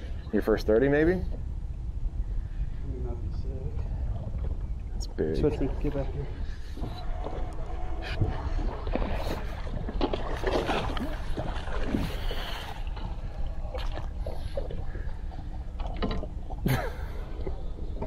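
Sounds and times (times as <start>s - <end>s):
steady low rumble: 0.0s - 18.0s
fish thrashing and splashing: 8.6s - 14.9s.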